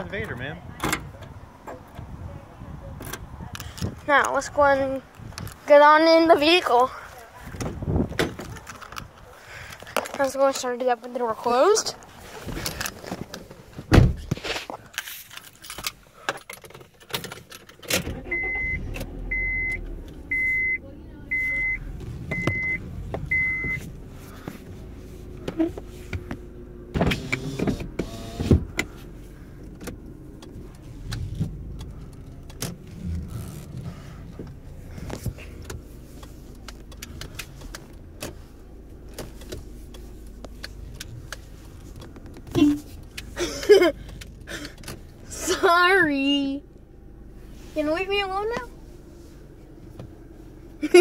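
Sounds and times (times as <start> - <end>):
car engine idling: 0.0 - 14.8, 15.4 - 51.0
dashboard warning chime beeping: 18.2 - 23.9.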